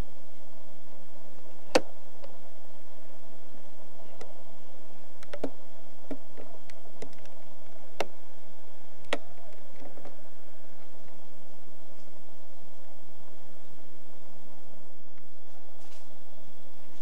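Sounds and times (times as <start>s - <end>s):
sharp clicks and ticks: 5.2s - 8.2s.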